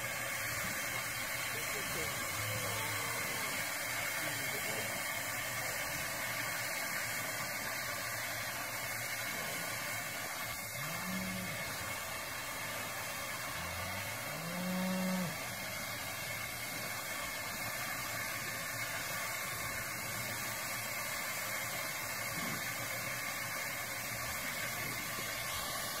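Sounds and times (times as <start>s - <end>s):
steady hiss: 0.0s - 26.0s
cow mooing: 10.8s - 11.8s, 13.6s - 15.4s.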